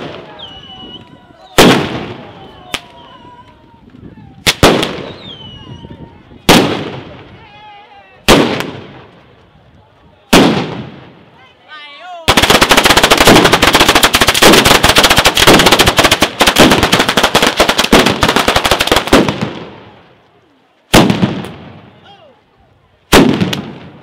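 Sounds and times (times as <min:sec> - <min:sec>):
firecrackers banging: 0:00.0 - 0:05.6, 0:06.4 - 0:07.4, 0:08.2 - 0:09.4, 0:10.3 - 0:11.3, 0:12.2 - 0:20.0, 0:20.9 - 0:22.0, 0:23.1 - 0:24.0.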